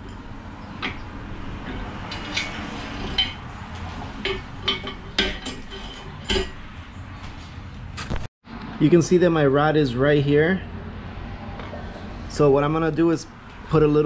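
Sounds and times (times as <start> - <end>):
metal clanks and knocks: 0.0 - 6.7.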